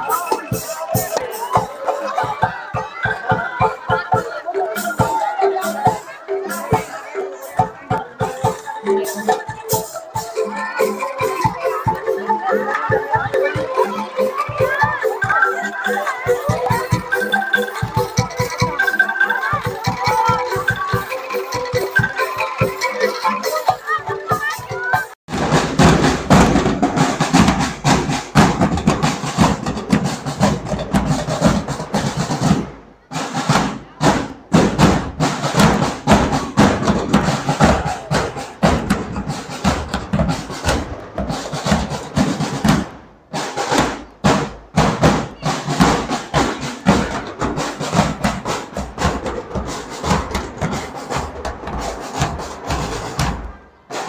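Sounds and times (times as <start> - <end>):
snare drums beating: 24.3 - 54.0
bass drums beating: 24.4 - 53.6.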